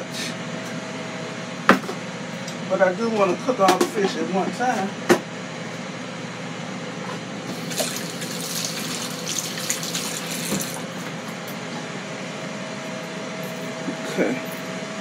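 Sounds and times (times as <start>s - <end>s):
low background hum: 0.0s - 15.0s
faucet water splashing in sink: 7.5s - 10.8s.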